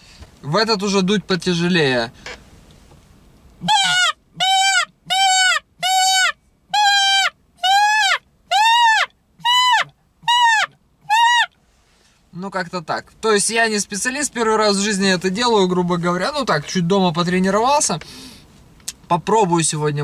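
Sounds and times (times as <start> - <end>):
predator call squealing cries: 3.6 - 11.5.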